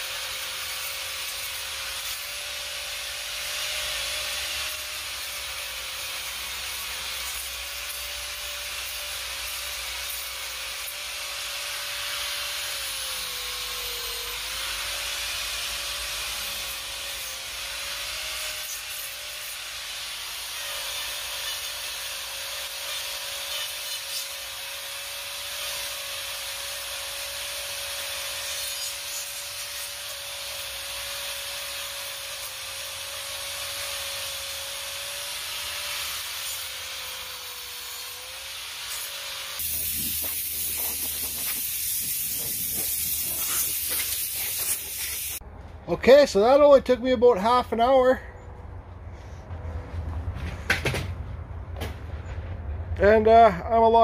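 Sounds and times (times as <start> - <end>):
angle grinder whining: 0.0 - 45.4
rough grinding on wood: 0.0 - 45.4.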